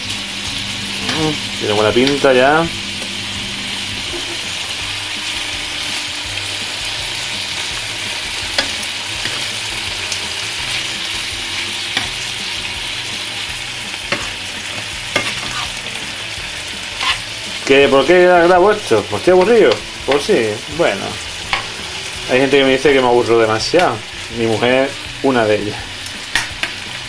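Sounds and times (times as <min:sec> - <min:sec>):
meat sizzling in a frying pan: 0:00.0 - 0:27.0
metal tongs clicking on a pan: 0:08.5 - 0:09.5, 0:26.0 - 0:26.8.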